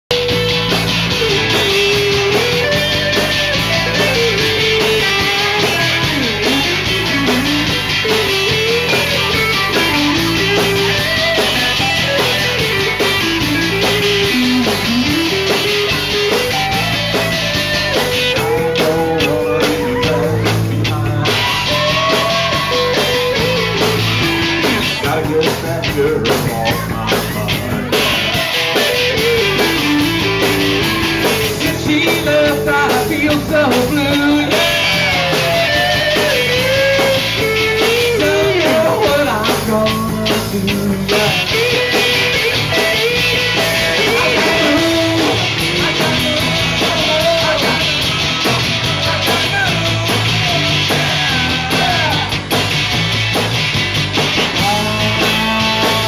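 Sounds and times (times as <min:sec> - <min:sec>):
rock band playing: 0:00.0 - 0:56.0
lead singer singing: 0:16.5 - 0:52.5, 0:54.4 - 0:56.0.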